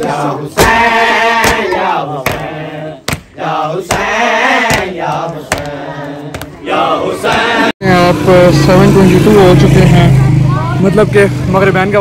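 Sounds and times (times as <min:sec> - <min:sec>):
men chanting a lament: 0:00.0 - 0:08.9.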